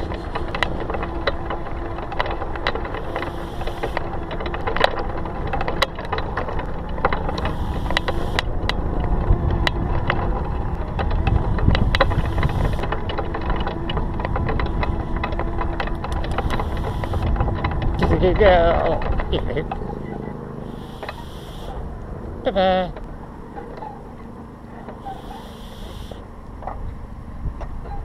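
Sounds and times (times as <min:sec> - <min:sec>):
low rumble: 0:00.0 - 0:25.3
rattling and sharp clicks: 0:00.0 - 0:26.8
small motor running: 0:02.8 - 0:04.7, 0:07.2 - 0:08.6, 0:11.4 - 0:13.1, 0:16.1 - 0:22.0, 0:24.9 - 0:26.2.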